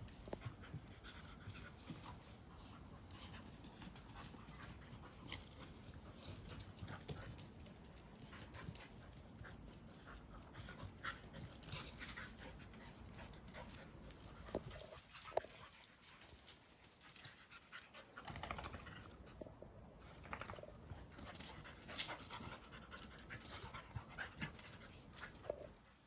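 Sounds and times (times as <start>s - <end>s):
dogs panting: 0.1s - 26.0s.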